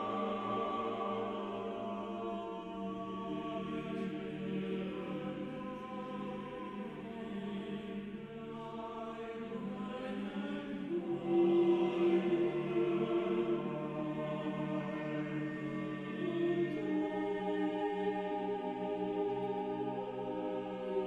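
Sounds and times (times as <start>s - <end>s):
choir singing held notes: 0.0s - 5.2s.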